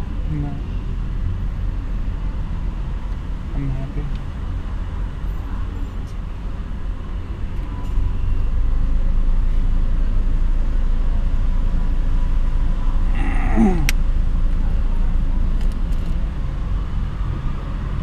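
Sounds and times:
brief falling-pitched voice: 0:13.2 - 0:13.9.

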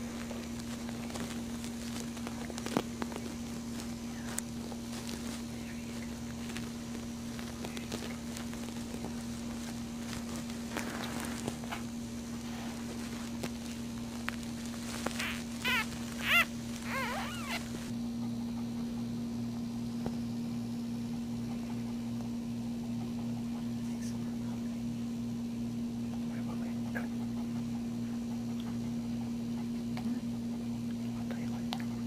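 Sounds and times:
steady low hum: 0:00.0 - 0:32.0
puppy squealing: 0:14.9 - 0:17.9.

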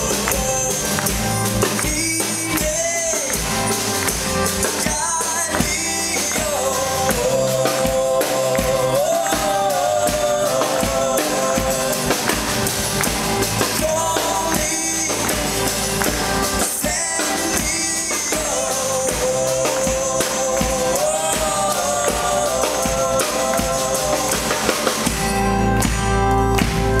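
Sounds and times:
acoustic guitar: 0:00.0 - 0:27.0
drum kit: 0:00.0 - 0:27.0
keyboards: 0:00.0 - 0:27.0
person singing long notes: 0:04.6 - 0:12.7, 0:13.6 - 0:25.1.

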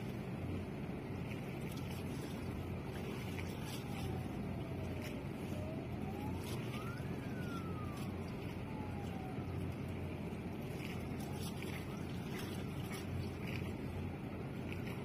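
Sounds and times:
harbour low rumble: 0:00.0 - 0:15.0
faint wailing siren tone: 0:01.9 - 0:15.0.

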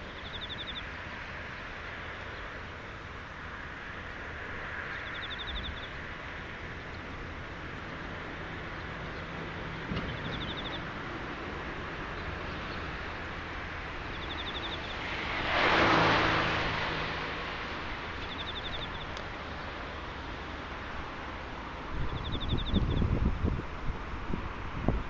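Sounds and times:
insect rapid trill: 0:00.0 - 0:23.4
car passing by: 0:00.0 - 0:25.0
steady outdoor hiss: 0:00.0 - 0:25.0.

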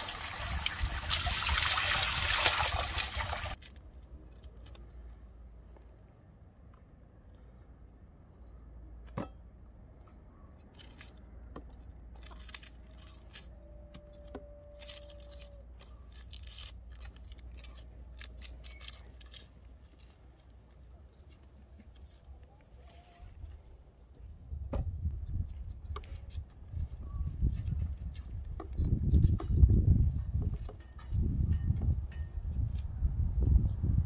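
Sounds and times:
knife peeling onion skin: 0:12.0 - 0:13.6, 0:14.7 - 0:22.4, 0:32.5 - 0:33.8.

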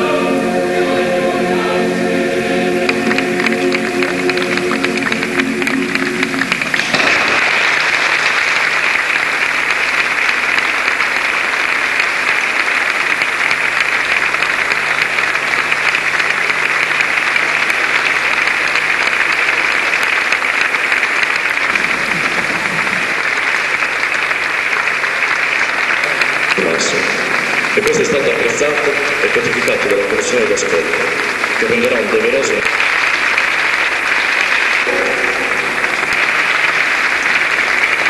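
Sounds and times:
choir singing a held chord: 0:00.0 - 0:06.5
audience applause: 0:00.8 - 0:38.0.

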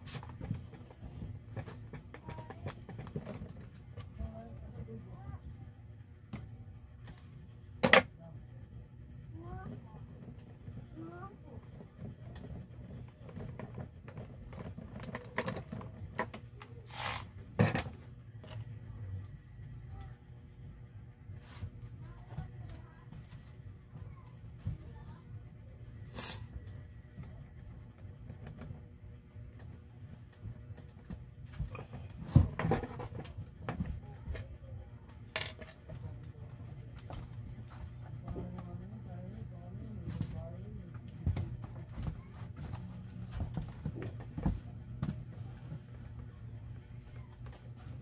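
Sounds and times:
steady low hum: 0:00.0 - 0:48.0
brief scrape: 0:16.9 - 0:17.3.

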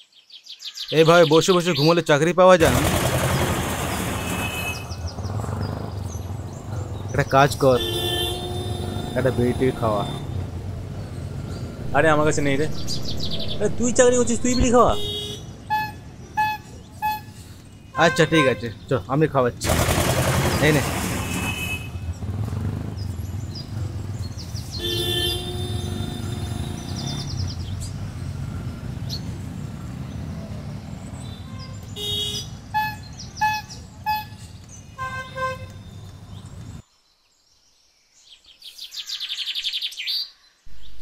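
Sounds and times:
traffic rumble: 0:02.6 - 0:36.8
vehicle horn: 0:04.0 - 0:05.1, 0:07.6 - 0:10.7, 0:14.5 - 0:17.4, 0:18.0 - 0:18.8, 0:20.8 - 0:22.3, 0:24.8 - 0:27.4, 0:31.2 - 0:36.0.

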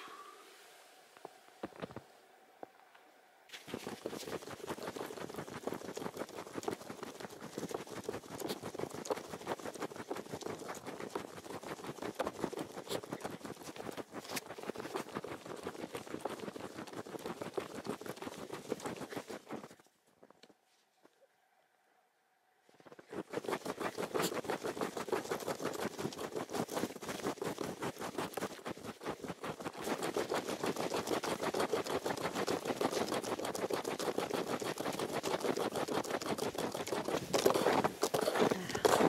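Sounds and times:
footsteps crunching in snow: 0:03.5 - 0:08.6, 0:36.8 - 0:39.0.

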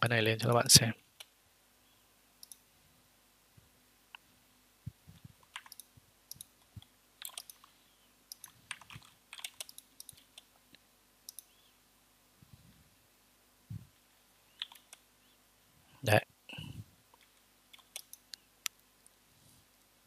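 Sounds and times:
computer mouse clicks: 0:02.4 - 0:02.6, 0:05.2 - 0:11.6, 0:14.6 - 0:15.1, 0:17.1 - 0:19.2
soft low thumps: 0:04.8 - 0:05.4, 0:13.6 - 0:14.0.

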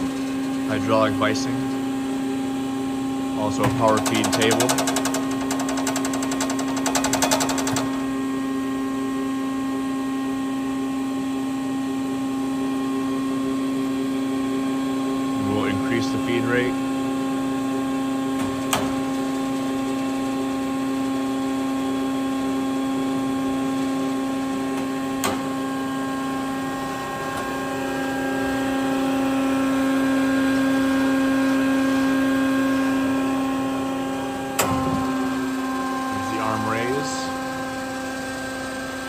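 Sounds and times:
band saw motor humming: 0:00.0 - 0:09.6, 0:14.6 - 0:39.0.

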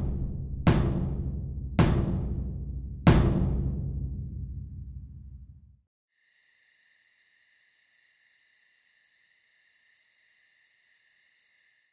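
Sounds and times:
drum hit rumbling: 0:00.0 - 0:05.4
crickets chirping: 0:06.1 - 0:11.9.

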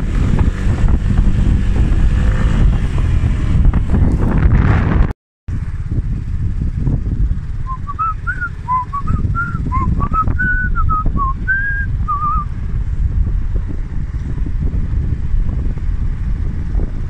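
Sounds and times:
wind buffeting microphone: 0:00.0 - 0:17.0
person whistling a tune: 0:07.7 - 0:12.5.

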